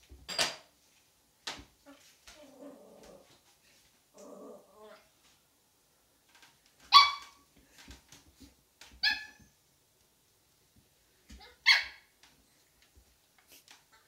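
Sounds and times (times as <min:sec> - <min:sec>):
puppy barking: 0:06.9 - 0:07.3, 0:11.4 - 0:12.0.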